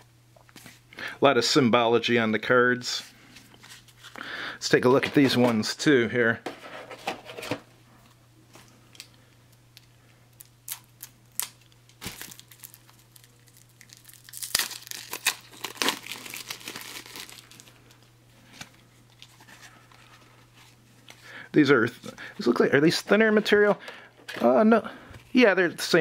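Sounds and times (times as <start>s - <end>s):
plastic wrap crinkling: 9.8s - 21.2s.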